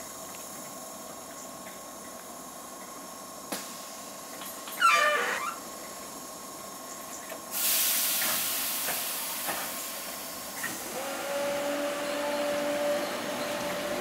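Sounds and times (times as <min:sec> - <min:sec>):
air brakes hissing: 0:07.5 - 0:11.0
train motor whine: 0:10.6 - 0:14.0.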